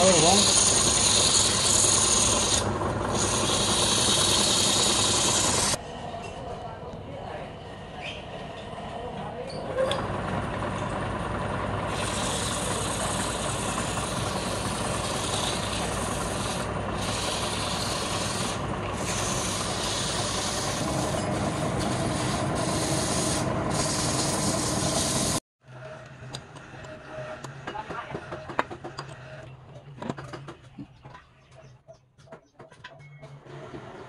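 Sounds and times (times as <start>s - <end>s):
electric lathe hum: 0.0s - 5.8s, 10.0s - 25.4s
sandpaper rasping on spinning wood: 0.0s - 5.8s, 11.9s - 25.4s.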